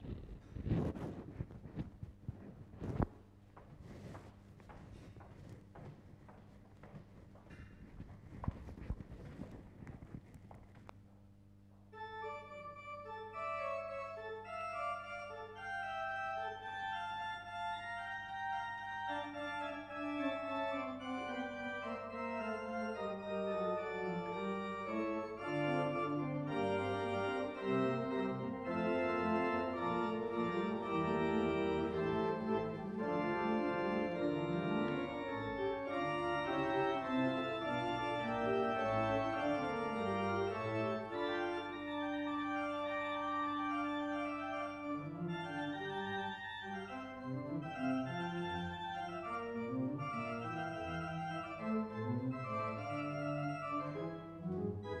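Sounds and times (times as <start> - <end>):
church organ playing: 11.9 - 55.0.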